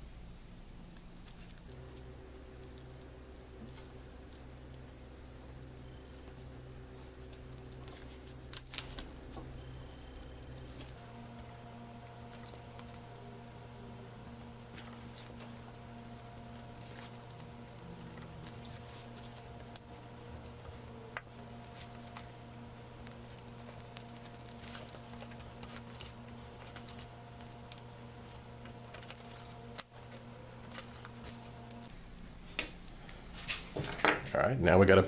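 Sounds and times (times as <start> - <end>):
low electrical hum: 0.0 - 35.0
knife cutting plastic: 6.3 - 31.9.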